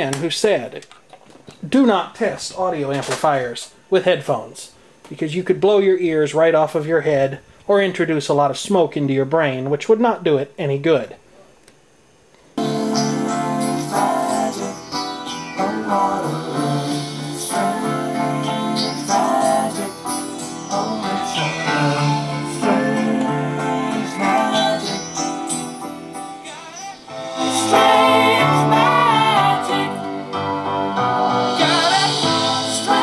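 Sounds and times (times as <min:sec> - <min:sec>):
music with guitar and singing: 0:12.6 - 0:33.0.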